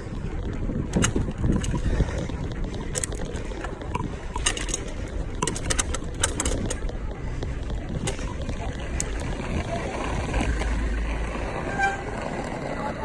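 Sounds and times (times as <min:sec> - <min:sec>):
sharp clicks and rattles: 0:00.0 - 0:09.7
bicycle rolling rumble: 0:00.0 - 0:13.0
wind buffeting microphone: 0:00.0 - 0:13.0.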